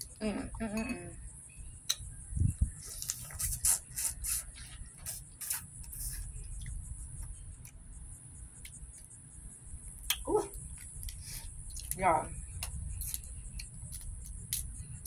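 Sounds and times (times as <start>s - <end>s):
steady high hiss: 0.0s - 15.0s
chewing and shell-picking: 10.0s - 15.0s.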